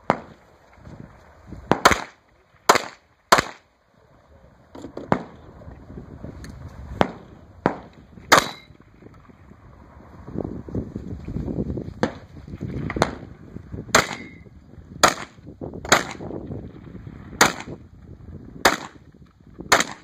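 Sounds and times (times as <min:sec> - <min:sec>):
pistol shots: 0:01.7 - 0:03.7, 0:05.1 - 0:05.4, 0:07.0 - 0:08.7, 0:13.9 - 0:14.4, 0:15.0 - 0:16.3, 0:17.4 - 0:17.8, 0:18.6 - 0:19.0, 0:19.7 - 0:20.0.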